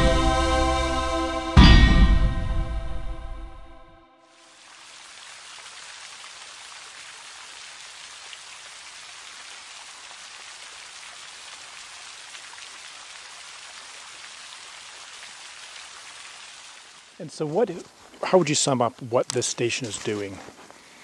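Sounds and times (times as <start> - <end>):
rain falling on water: 4.3 - 21.0.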